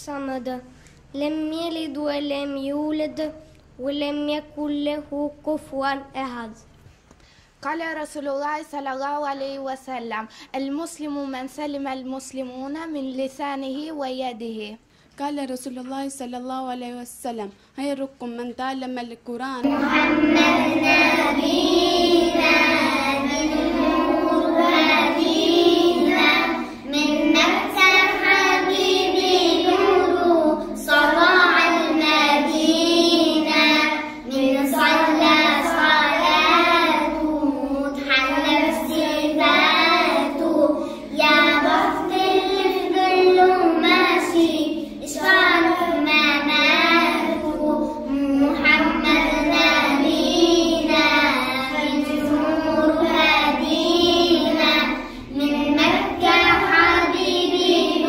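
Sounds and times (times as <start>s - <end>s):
girl singing a chant: 19.6s - 58.0s.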